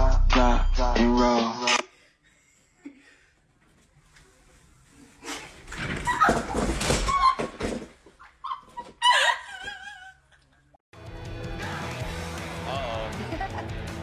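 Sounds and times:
music: 0:00.0 - 0:01.8, 0:11.0 - 0:14.0.

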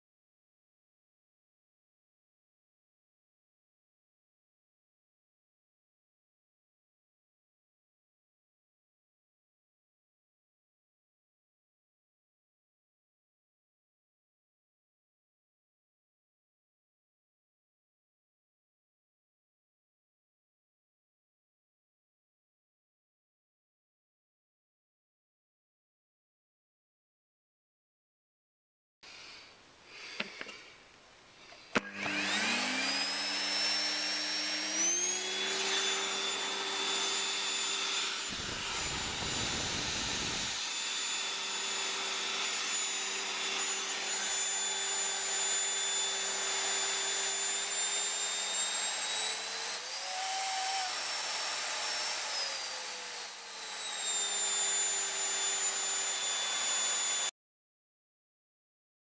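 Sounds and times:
vacuum cleaner motor whine: 0:31.7 - 0:57.3
vacuum cleaner switch click: 0:31.8 - 0:32.4.

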